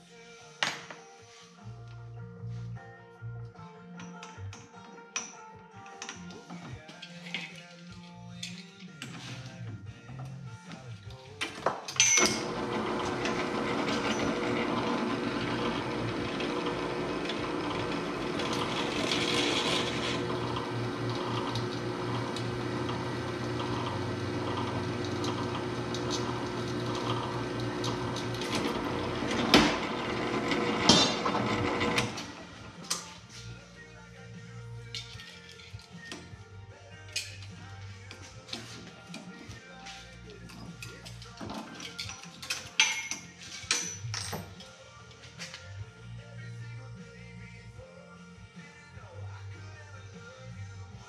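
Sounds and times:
drill press motor running: 12.2s - 32.8s.

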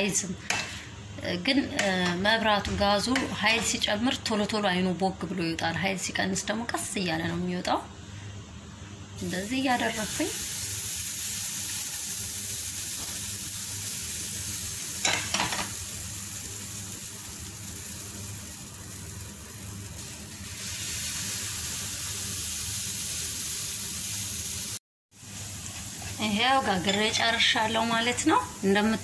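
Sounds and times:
pancake batter sizzling: 9.2s - 29.0s.

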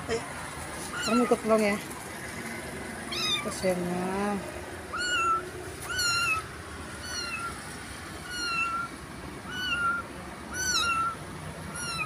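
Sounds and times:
cat meowing: 0.9s - 1.4s, 3.1s - 3.5s, 4.9s - 7.6s, 8.2s - 8.9s, 9.5s - 12.0s.

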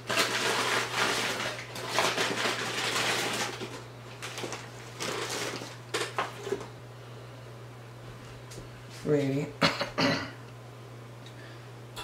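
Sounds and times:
plastic bag rustling: 0.0s - 6.8s.

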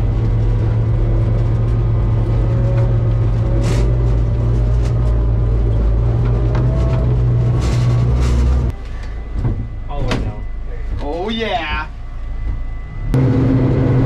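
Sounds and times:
vehicle engine low drone: 0.0s - 14.0s.

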